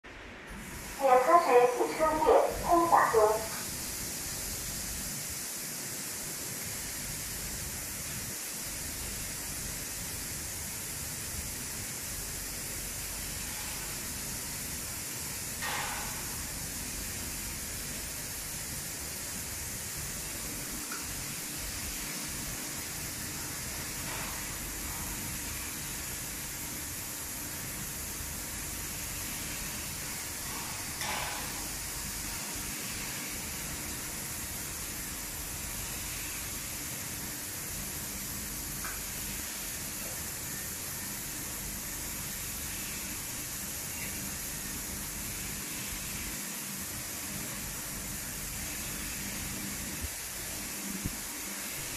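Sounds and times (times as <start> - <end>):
car wash machine hissing: 0.5 - 51.9
water spray rushing: 0.9 - 5.2.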